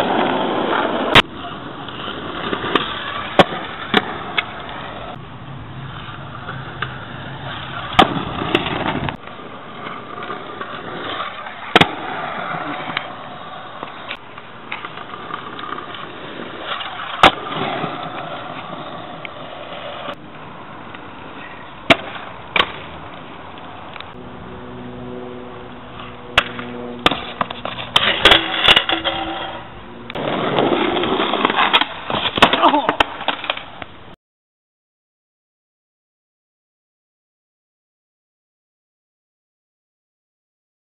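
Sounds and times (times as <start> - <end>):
skateboard wheels rolling on asphalt: 0.0 - 34.2
skateboard deck clacks: 26.4 - 33.9.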